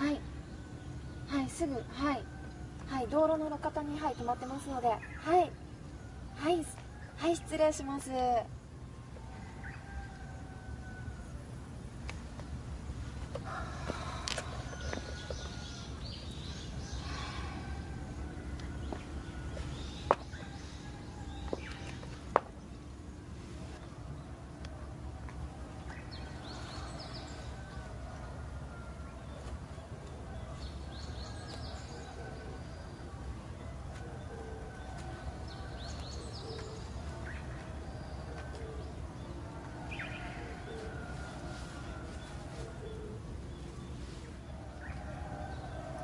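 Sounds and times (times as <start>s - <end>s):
steady low rumble: 8.4s - 46.0s
birds chirping: 12.0s - 46.0s.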